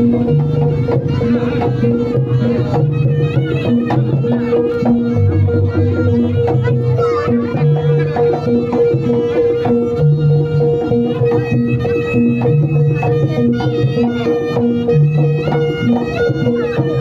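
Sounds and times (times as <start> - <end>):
hand drum strokes: 0.0 - 17.0
wavering high melody: 0.0 - 17.0
steady held note: 4.6 - 7.6.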